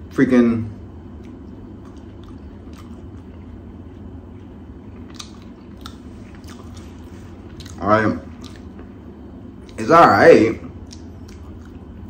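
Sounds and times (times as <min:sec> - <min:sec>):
steady low hum: 0:00.0 - 0:12.0
chewing meat snack: 0:01.1 - 0:08.9, 0:10.8 - 0:12.0.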